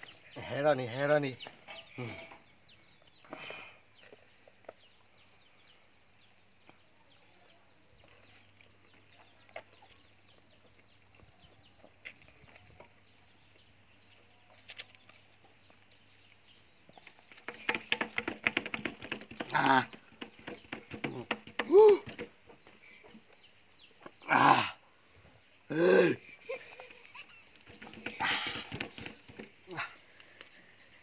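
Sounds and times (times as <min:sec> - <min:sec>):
faint clicks: 0:30.2 - 0:30.6.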